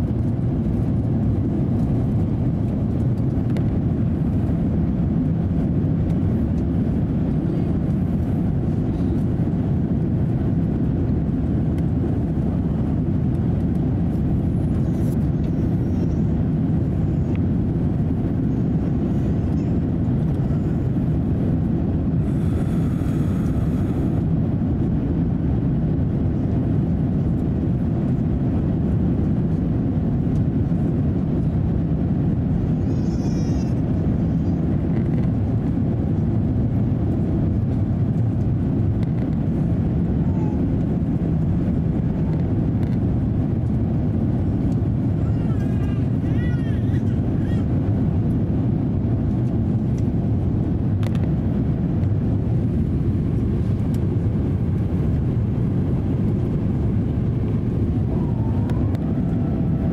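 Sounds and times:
airliner cabin rumble: 0.0 - 59.9.

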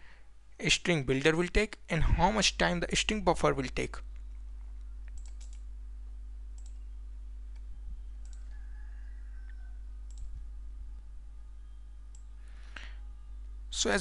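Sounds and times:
low electrical hum: 0.0 - 14.0
computer mouse clicks: 5.0 - 5.6, 6.6 - 6.8, 7.5 - 8.6, 9.4 - 10.3, 12.1 - 12.3.

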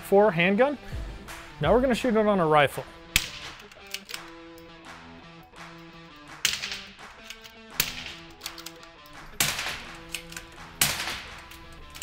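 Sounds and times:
suppressed rifle shots: 9.4 - 10.0, 10.8 - 11.4.

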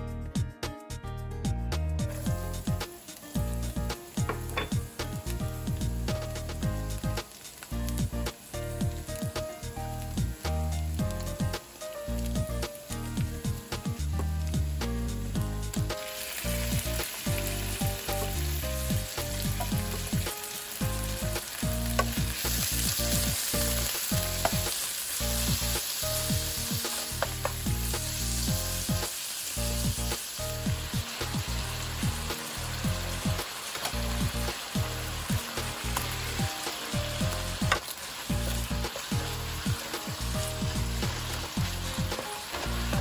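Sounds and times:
meat sizzling in hot oil: 2.0 - 43.0
spatula knocking against pan: 4.2 - 4.8.

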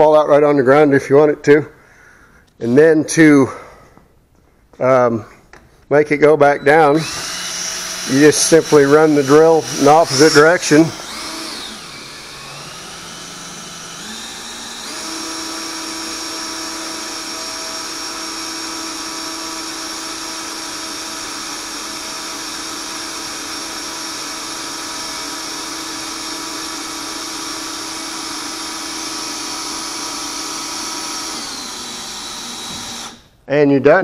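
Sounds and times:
drill driving pump motor whine: 6.6 - 33.4.

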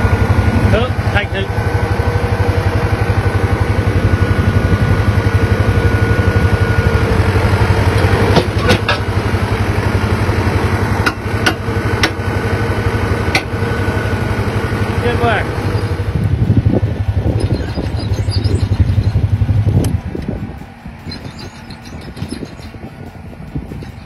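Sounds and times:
diesel tractor engine throbbing: 0.0 - 24.0.

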